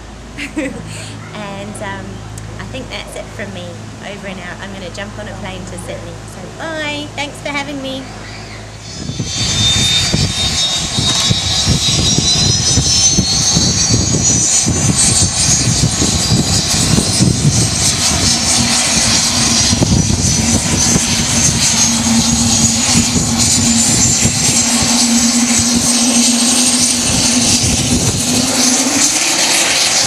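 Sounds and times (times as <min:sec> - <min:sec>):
heavy low rumble: 0:00.0 - 0:30.0
high turbine whine: 0:00.0 - 0:30.0
steady low hum: 0:00.0 - 0:30.0
turboprop engines spooling up: 0:00.0 - 0:30.0.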